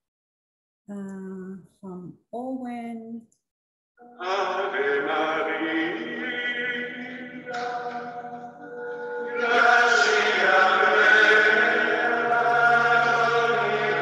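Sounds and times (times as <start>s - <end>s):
layered chant-like voices: 4.0s - 14.0s.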